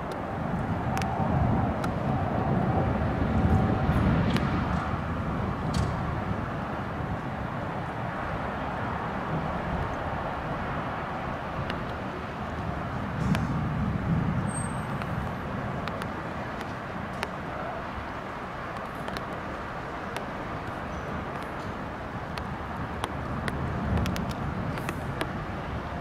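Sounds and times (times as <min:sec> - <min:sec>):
distant city traffic hum: 0:00.0 - 0:26.0
faint clicks: 0:15.0 - 0:17.4, 0:18.7 - 0:25.4.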